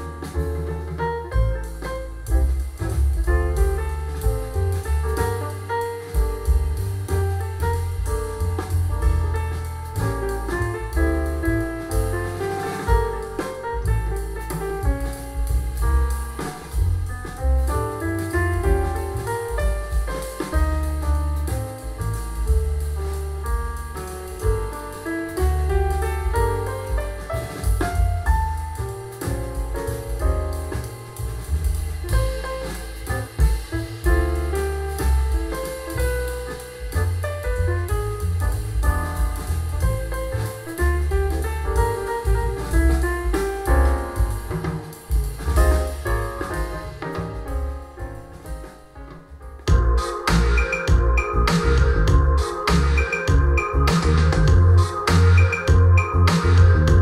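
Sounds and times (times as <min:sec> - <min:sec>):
moving bass line: 0:00.0 - 0:48.7, 0:49.7 - 0:57.0
jazz music over loudspeakers: 0:00.0 - 0:57.0.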